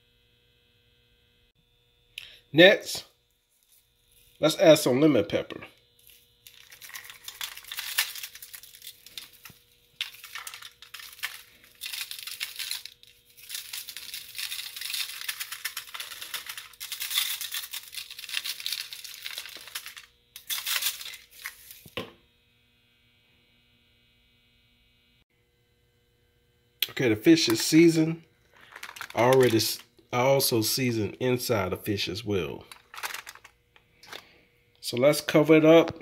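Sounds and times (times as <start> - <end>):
faint steady hum: 0.0 - 36.0
seasoning falling onto foil: 6.4 - 22.1, 28.6 - 29.8, 32.7 - 34.2
seasoning rattling in shaker: 6.5 - 21.8, 28.6 - 29.8, 32.7 - 33.5.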